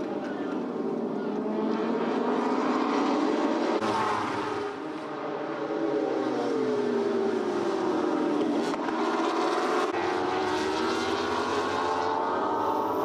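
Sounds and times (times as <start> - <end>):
racing motorcycles passing: 0.0 - 13.0.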